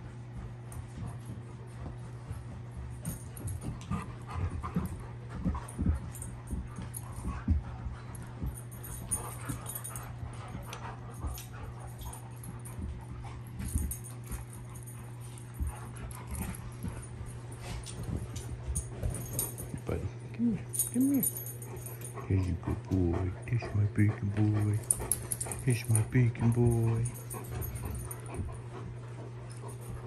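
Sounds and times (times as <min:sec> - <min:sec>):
dogs scuffling on carpet: 0:00.0 - 0:30.0
steady low hum: 0:00.0 - 0:30.0
dog vocal noises: 0:18.8 - 0:30.0.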